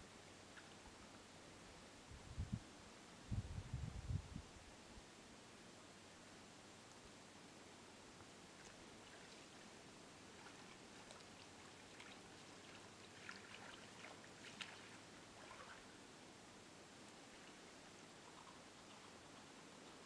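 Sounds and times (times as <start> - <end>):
quiet hiss: 0.0 - 20.0
animal feet splashing in mud: 10.4 - 15.8.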